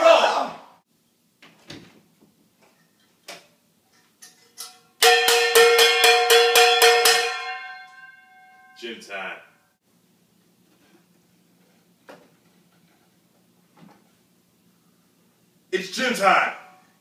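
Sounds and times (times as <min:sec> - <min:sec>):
steel pots clanging together: 0:02.7 - 0:08.8.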